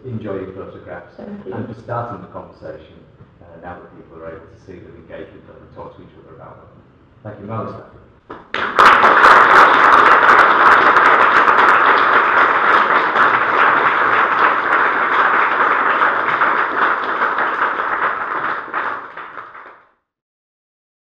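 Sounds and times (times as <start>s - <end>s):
audience applauding: 8.3s - 20.0s.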